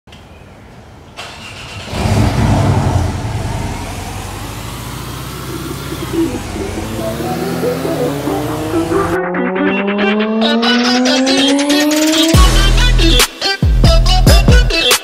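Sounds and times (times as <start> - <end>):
car engine starting and idling: 1.2 - 13.1.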